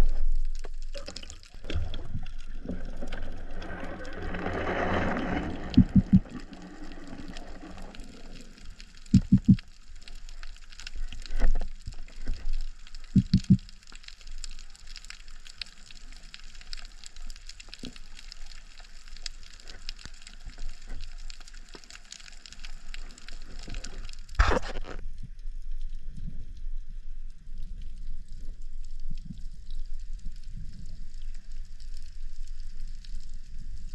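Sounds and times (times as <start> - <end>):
underwater fine crackling: 0.0 - 33.9
dull low knocks: 5.8 - 6.3, 9.2 - 9.6, 13.2 - 13.6.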